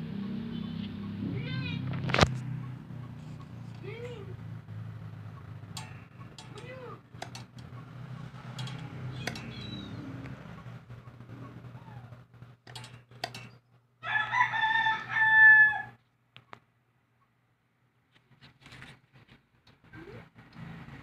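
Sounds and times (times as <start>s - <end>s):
metal parts clicking and tapping: 5.6s - 10.4s, 12.6s - 13.6s
rooster crowing: 14.0s - 16.0s.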